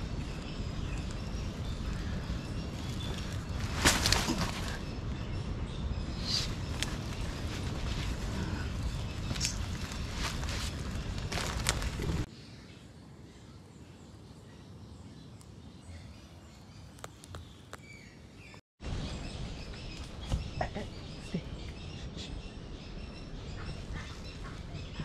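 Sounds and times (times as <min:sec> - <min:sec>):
birds chirping: 0:00.0 - 0:25.0
steady outdoor background: 0:00.0 - 0:25.0
sharp crunches and knocks: 0:03.0 - 0:04.8, 0:09.2 - 0:12.3.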